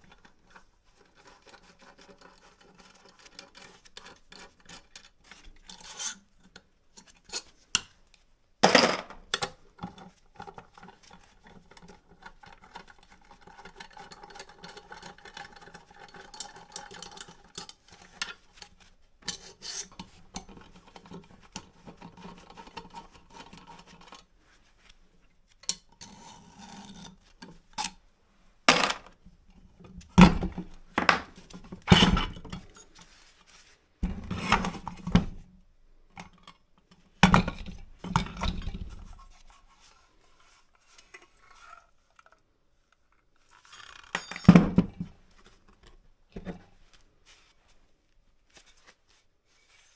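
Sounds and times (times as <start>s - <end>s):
metal knocks and clinks: 44.0s - 44.8s.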